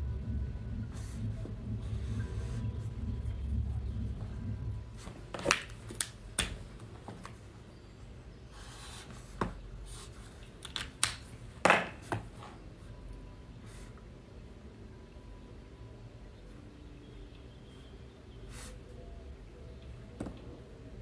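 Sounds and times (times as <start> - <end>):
highlighter pens clicking and tapping: 10.4 - 12.2.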